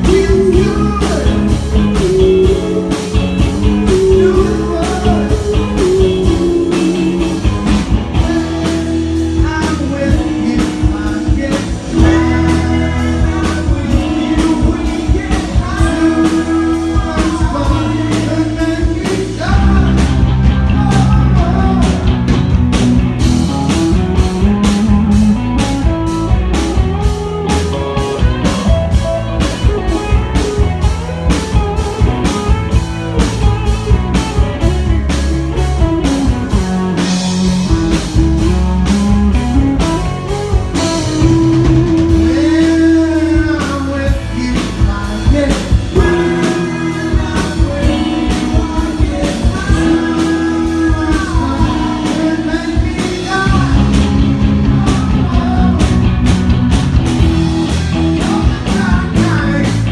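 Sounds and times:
singer's vocal: 0.0s - 22.4s, 40.8s - 56.2s, 58.1s - 59.9s
live rock band playing: 0.0s - 59.9s
steady drum beat: 0.0s - 59.9s.

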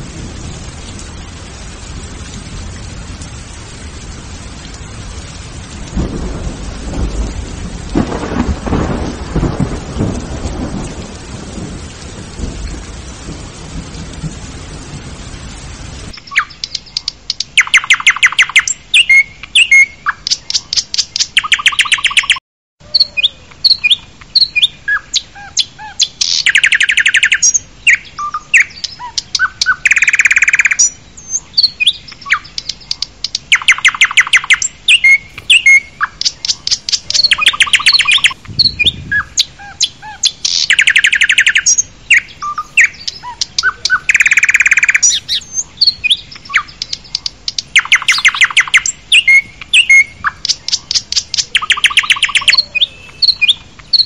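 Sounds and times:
small birds chirping: 16.1s - 54.0s.

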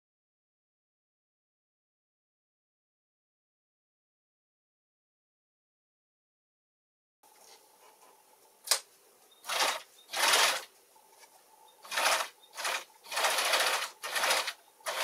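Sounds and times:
sewing machine stitching: 9.4s - 10.7s, 11.8s - 15.0s.

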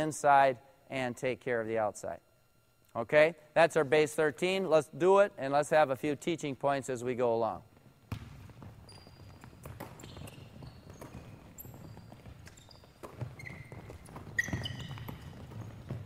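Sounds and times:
sneakers squeaking on gym floor: 7.6s - 16.0s
footsteps: 7.7s - 16.0s
basketball bouncing: 8.0s - 16.0s.

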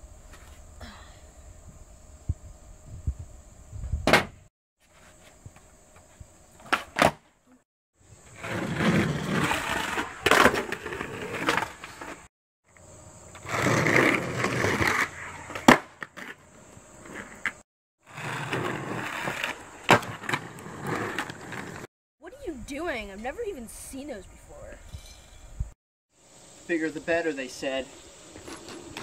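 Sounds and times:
skateboard wheels rolling on concrete: 3.0s - 7.4s, 8.0s - 22.4s, 26.3s - 29.0s.

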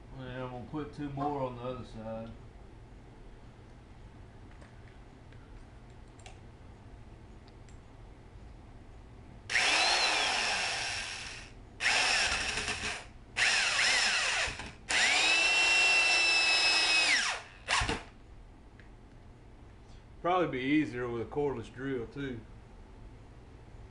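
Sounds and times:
electric drill driving screws: 9.5s - 18.1s.

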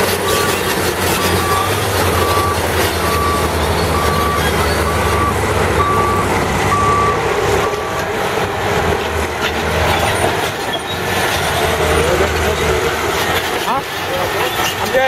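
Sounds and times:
diesel engine running: 0.0s - 15.0s
backup alarm beeping: 1.2s - 8.0s.

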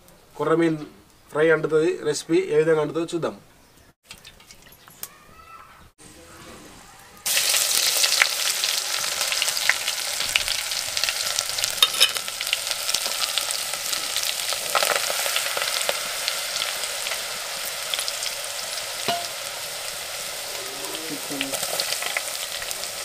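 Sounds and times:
wood fire crackling: 6.3s - 23.0s
hot oil sizzling in a pot: 7.2s - 23.0s.

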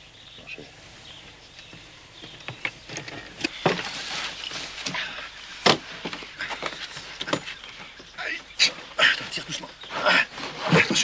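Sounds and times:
boards scraping: 2.2s - 8.0s.

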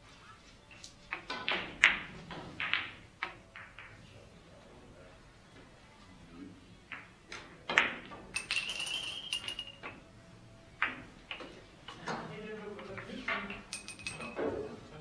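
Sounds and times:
billiard balls clicking: 0.7s - 4.0s, 6.9s - 10.0s, 10.8s - 14.6s.

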